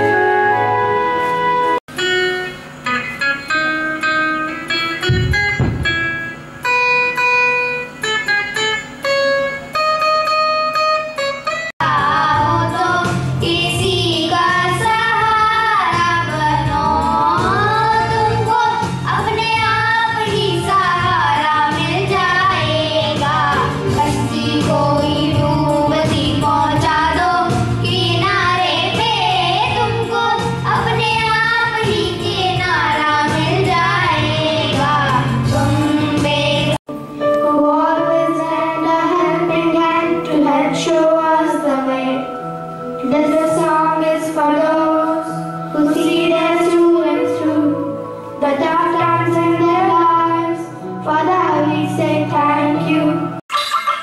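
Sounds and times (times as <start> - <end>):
instrumental accompaniment with low beat: 0.0 - 11.7
acoustic guitar plucked notes: 1.9 - 11.7
children singing into microphones: 11.8 - 42.4, 43.0 - 54.0.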